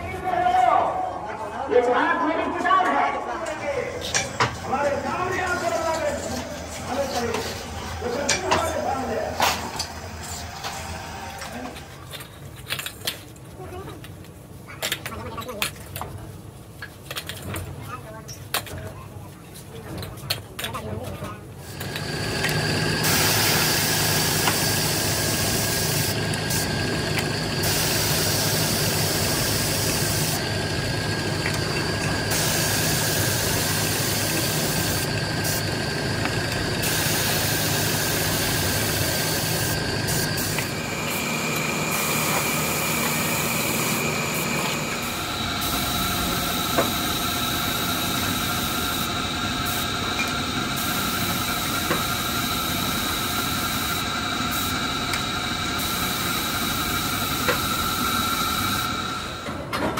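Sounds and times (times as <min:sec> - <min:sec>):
spray gun hissing: 0:21.7 - 0:59.2
motor drone: 0:21.7 - 0:59.6.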